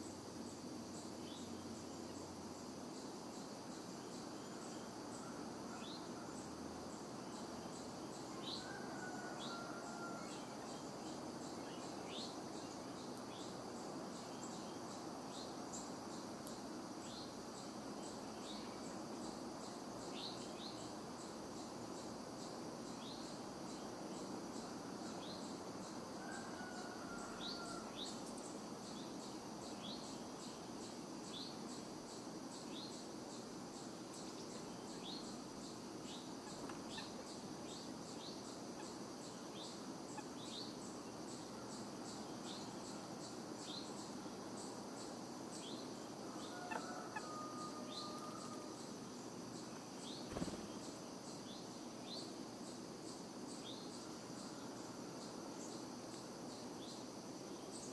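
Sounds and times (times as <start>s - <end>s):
pulsing insect trill: 0.0s - 57.9s.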